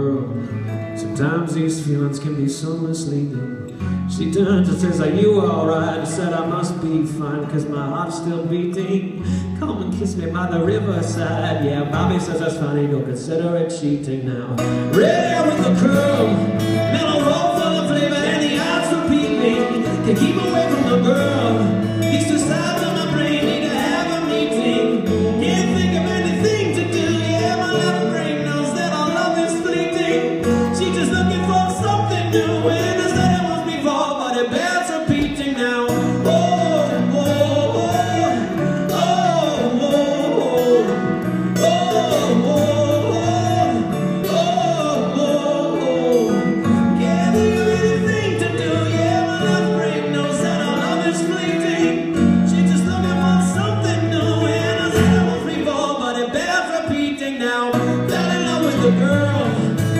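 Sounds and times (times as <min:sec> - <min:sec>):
acoustic guitar chords: 0:00.0 - 0:59.9
man singing: 0:00.0 - 0:59.9.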